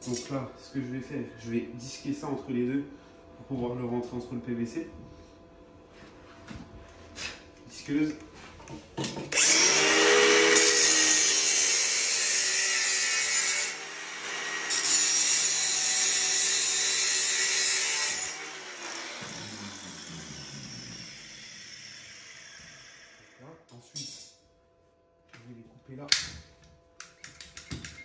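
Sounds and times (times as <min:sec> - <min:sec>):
angle grinder cutting metal: 0:09.3 - 0:23.4
grinder winding down: 0:09.3 - 0:23.4.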